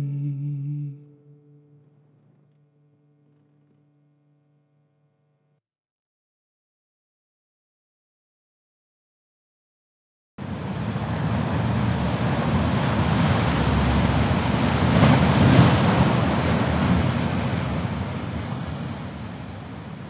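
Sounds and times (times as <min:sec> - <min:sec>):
sea wave surging and washing out: 0:10.4 - 0:20.0.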